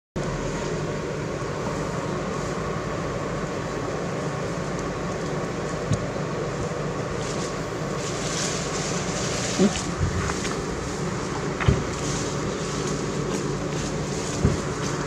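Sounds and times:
faint hum: 0:00.2 - 0:15.0
low rumbling background noise: 0:00.2 - 0:15.0.

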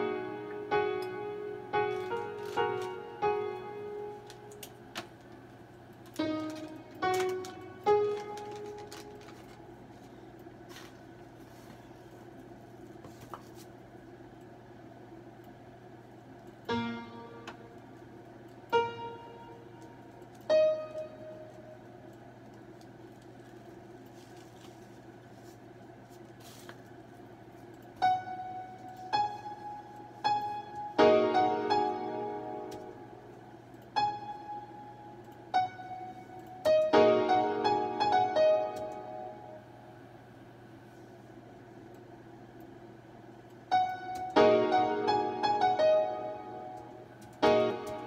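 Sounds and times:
piano notes: 0:00.0 - 0:09.9, 0:16.6 - 0:22.1, 0:27.9 - 0:40.3, 0:43.7 - 0:48.0
low steady hum: 0:00.0 - 0:48.0.

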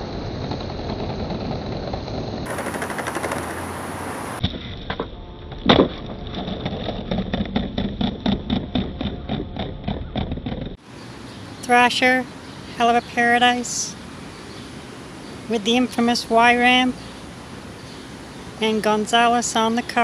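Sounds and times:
skateboard wheels rolling on concrete: 0:00.0 - 0:20.0
sharp clicks and knocks: 0:02.5 - 0:03.7.

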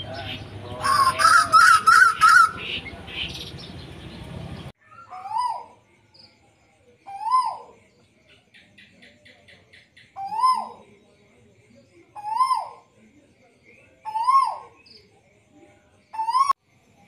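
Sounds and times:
bird calls rising and falling: 0:00.0 - 0:05.8
songbird chirps: 0:00.0 - 0:17.0.

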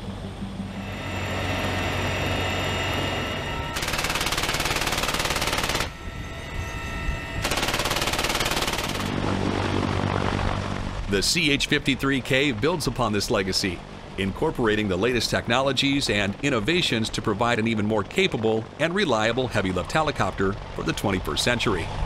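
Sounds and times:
helicopter cabin noise: 0:00.0 - 0:22.0
machine gun firing bursts: 0:03.8 - 0:06.0, 0:07.4 - 0:09.2.

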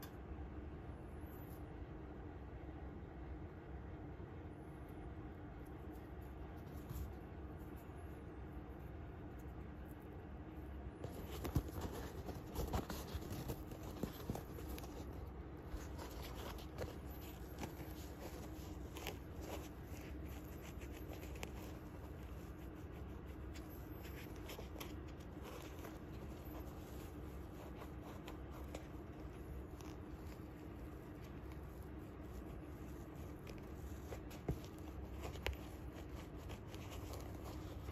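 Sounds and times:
faint steady hum: 0:00.0 - 0:37.9
fingers rubbing shoe laces: 0:11.0 - 0:37.9.

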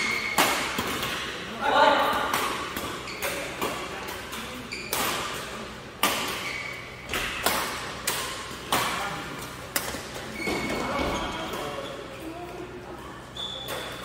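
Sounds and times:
rackets hitting shuttlecock: 0:00.0 - 0:01.4, 0:02.0 - 0:10.3.

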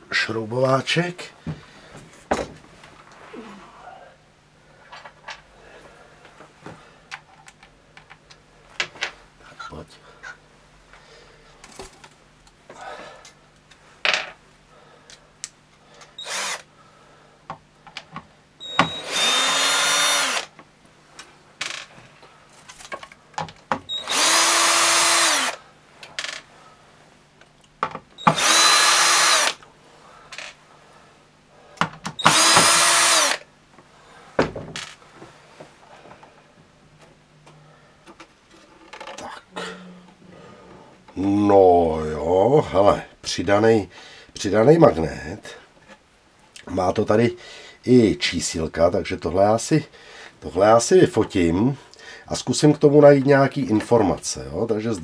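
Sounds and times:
cordless drill spinning: 0:16.2 - 0:16.7, 0:18.6 - 0:20.5, 0:23.9 - 0:25.6, 0:28.2 - 0:29.6, 0:32.2 - 0:33.5.

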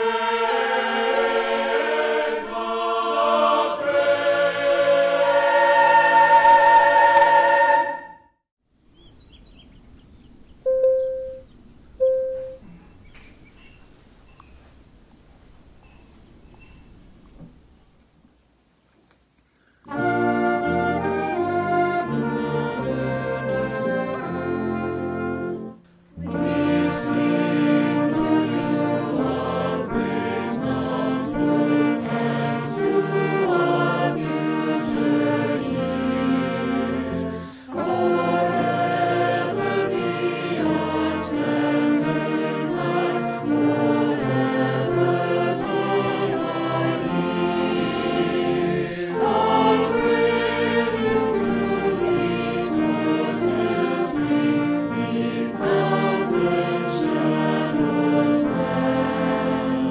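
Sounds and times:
mixed choir singing: 0:00.0 - 0:08.3, 0:19.9 - 0:59.9
wind band playing: 0:00.0 - 0:08.3, 0:19.9 - 0:59.9.

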